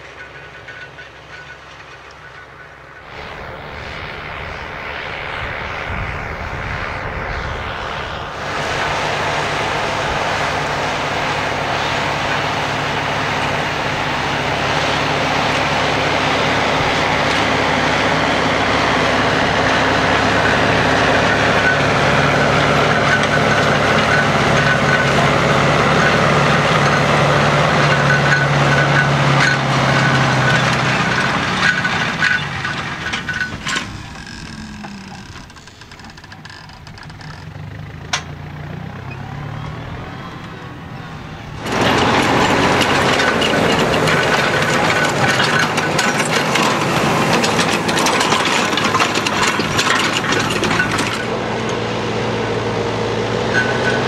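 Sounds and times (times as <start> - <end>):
cultivator clatter: 0.0 - 4.2, 8.3 - 39.2, 40.4 - 54.0
tractor diesel engine running: 0.0 - 54.0.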